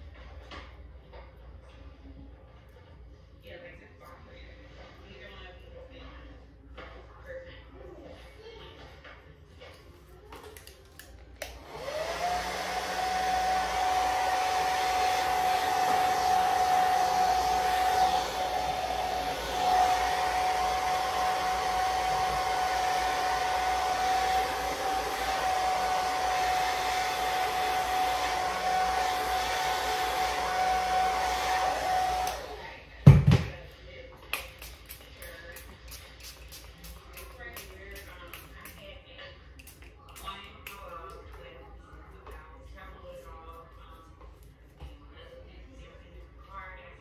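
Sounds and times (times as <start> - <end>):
rush of air from hair dryer: 11.4 - 33.0
hair dryer motor whine: 11.4 - 33.6.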